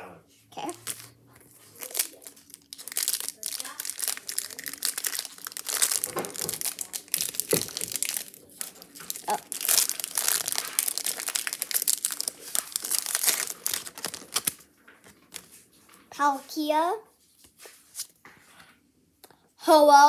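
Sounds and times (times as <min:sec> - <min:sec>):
foil wrapper crinkling and tearing: 0:00.6 - 0:15.5.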